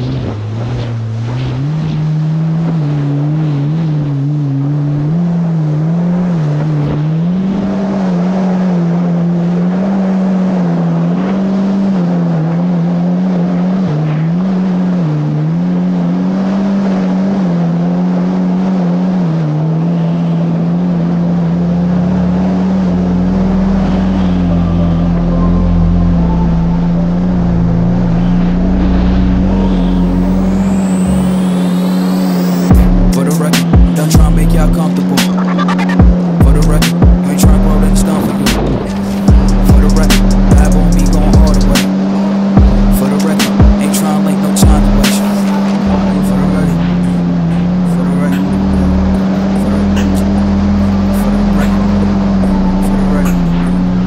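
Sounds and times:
jet ski engine running: 0:00.0 - 0:54.0
deep rumble: 0:21.4 - 0:43.8, 0:44.5 - 0:54.0.

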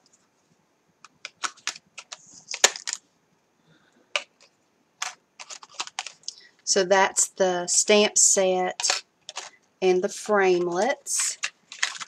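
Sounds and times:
light clicks and crinkles: 0:00.0 - 0:03.1, 0:04.1 - 0:06.5, 0:08.7 - 0:09.7, 0:10.6 - 0:12.0.

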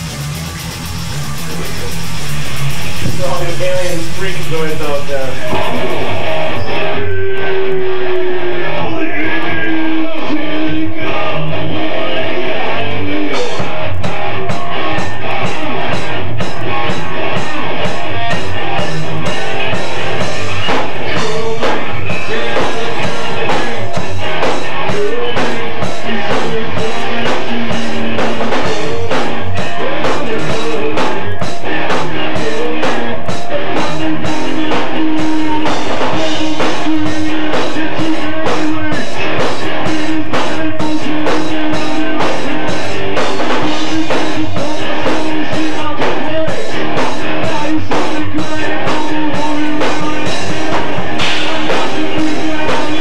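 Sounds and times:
drum kit with cymbal strikes: 0:00.0 - 0:06.9, 0:13.3 - 0:53.0
electric guitar: 0:00.0 - 0:53.0.

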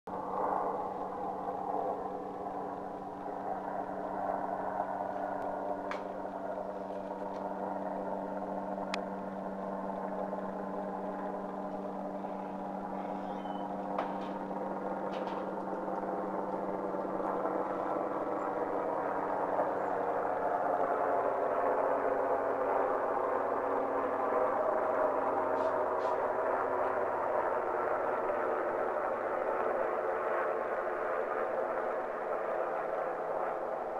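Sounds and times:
helicopter droning overhead: 0:00.1 - 0:33.9
faint clicks: 0:08.9 - 0:09.1.

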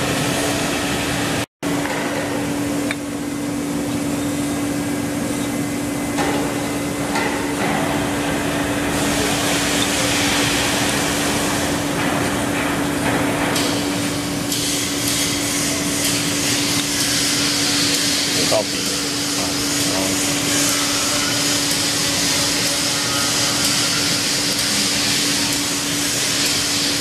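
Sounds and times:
machine hum: 0:00.0 - 0:27.0
workshop noise: 0:00.0 - 0:27.0.

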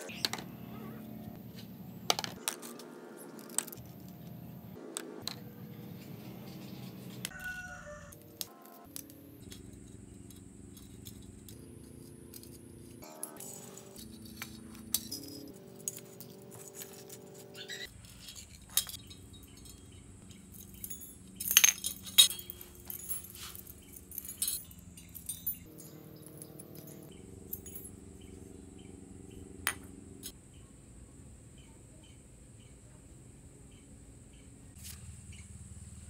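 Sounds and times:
bicycle spokes clinking: 0:13.1 - 0:27.9.

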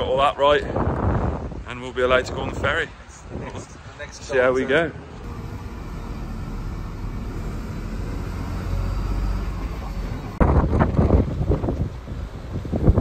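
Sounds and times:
lorry diesel engine rumbling: 0:05.0 - 0:13.0.

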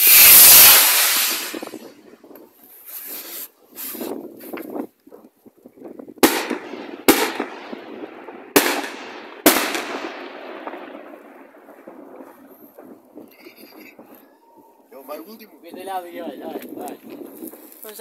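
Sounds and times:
fireworks fizzing: 0:00.0 - 0:04.2, 0:06.2 - 0:18.0
fireworks bangs with echo: 0:06.2 - 0:13.3.

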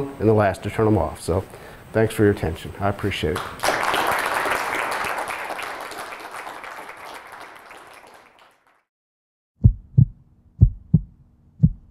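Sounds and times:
audience applause: 0:03.4 - 0:08.9
heartbeat thumps: 0:09.6 - 0:11.9.

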